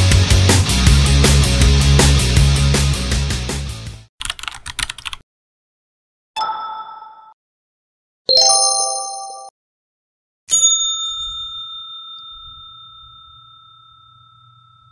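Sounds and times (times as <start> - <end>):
bell-like ding: 6.4 - 7.4, 8.3 - 9.5, 10.5 - 14.9
bright multi-tone ding: 6.4 - 7.4, 8.3 - 9.5, 10.5 - 14.9.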